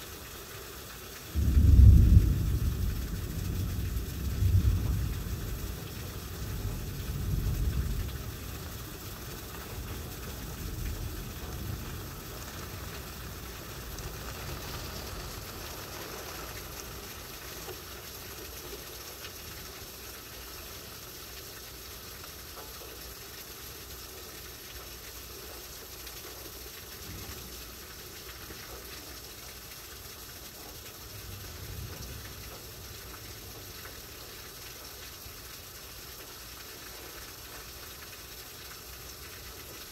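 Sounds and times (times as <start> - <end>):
heavy rain hissing: 0.0 - 39.9
thunder rumbling: 1.3 - 17.7.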